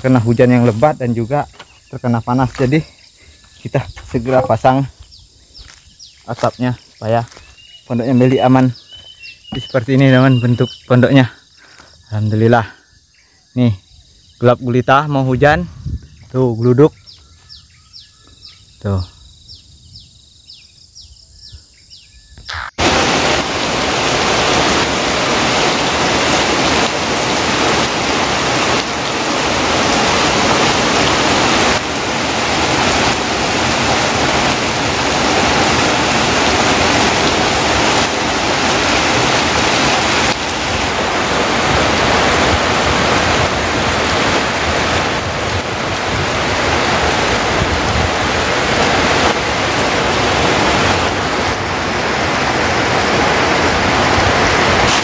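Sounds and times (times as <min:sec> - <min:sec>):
heavy rain hissing: 0:00.0 - 0:12.8, 0:22.5 - 0:55.0
faint chirping: 0:00.0 - 0:22.9.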